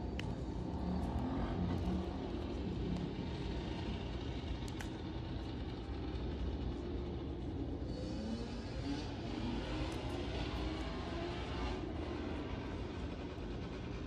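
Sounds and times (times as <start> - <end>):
low background rumble: 0.0 - 14.0
faint light clicks: 4.6 - 5.7.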